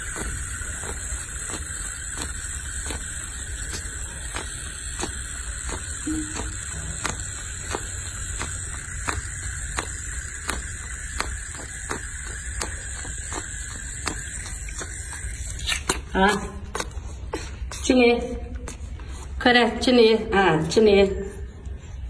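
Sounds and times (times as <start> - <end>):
steady hiss: 0.0 - 15.6.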